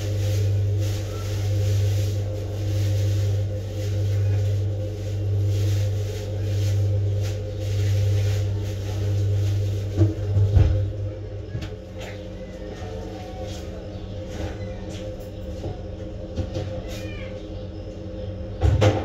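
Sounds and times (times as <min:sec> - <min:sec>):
low machine hum: 0:00.0 - 0:19.0.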